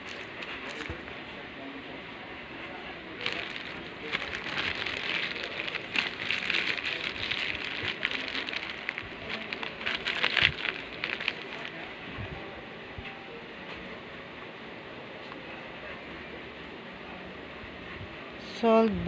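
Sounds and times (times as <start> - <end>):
packaging crinkling and rustling: 0.0 - 1.1, 3.2 - 11.9.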